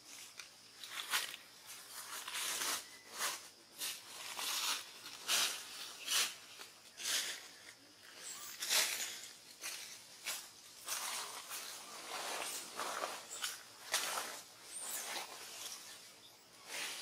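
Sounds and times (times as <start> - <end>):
dry rustling and scraping: 8.5 - 16.0.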